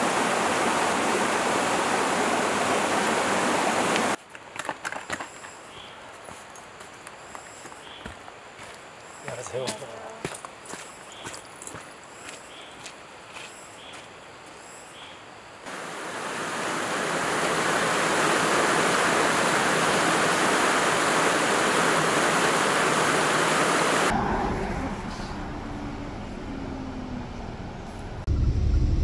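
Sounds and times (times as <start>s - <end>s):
stream splashing over rocks: 0.0s - 4.2s, 15.7s - 24.1s
footsteps on dirt trail: 4.2s - 14.6s
low vehicle rumble: 24.1s - 29.0s.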